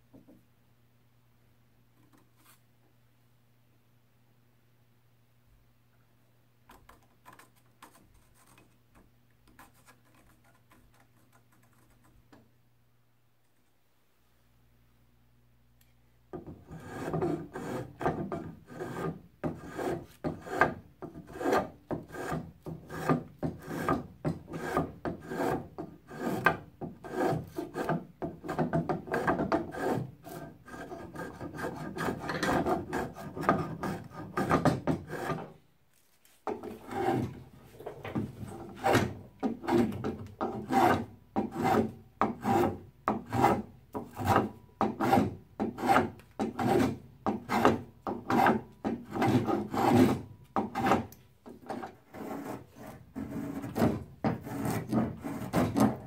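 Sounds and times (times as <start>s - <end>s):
spokeshave shaving wood: 16.7s - 35.5s, 38.7s - 56.0s.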